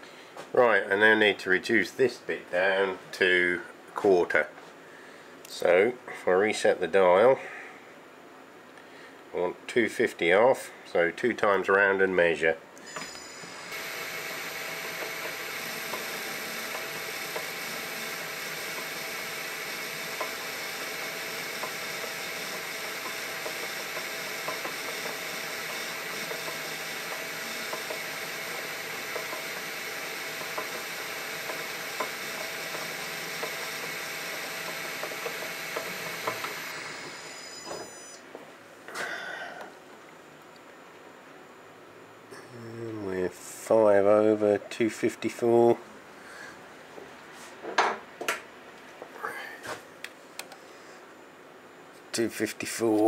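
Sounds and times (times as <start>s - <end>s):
cutting tool hiss: 12.8s - 38.2s
metal lathe motor and gear whine: 12.8s - 38.2s.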